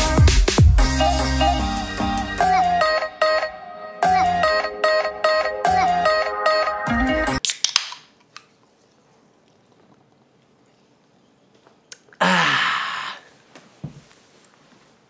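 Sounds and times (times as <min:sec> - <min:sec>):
soda can opening pop and hiss: 0:07.4 - 0:08.1
breathy vocal sound: 0:12.2 - 0:13.4.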